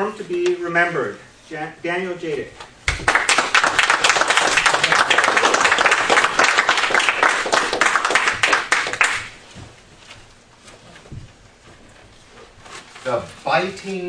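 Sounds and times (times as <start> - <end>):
audience applauding: 2.9 - 9.4.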